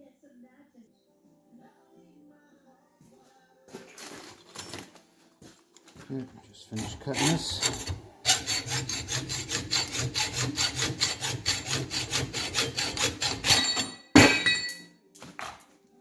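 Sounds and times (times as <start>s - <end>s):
hacksaw cutting metal: 6.7s - 14.8s
metal scrape or clank: 12.5s - 14.8s.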